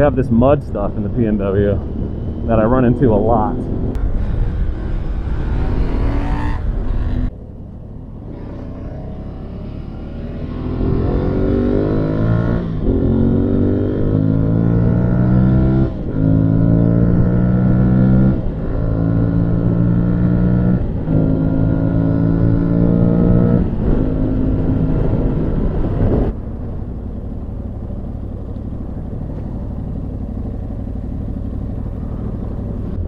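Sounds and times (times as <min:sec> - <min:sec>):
motorcycle engine accelerating: 0:00.0 - 0:33.0
wind noise rushing: 0:01.8 - 0:07.3, 0:23.6 - 0:26.7.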